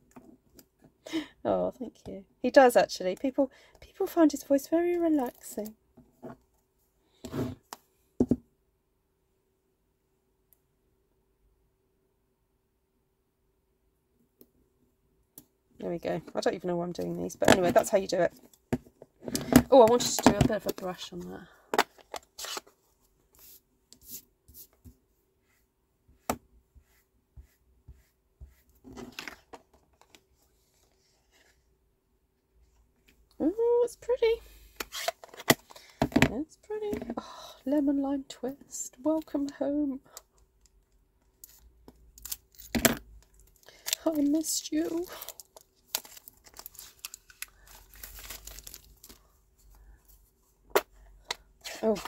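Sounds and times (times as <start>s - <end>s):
ink pad rubbing on card: 26.8s - 28.7s.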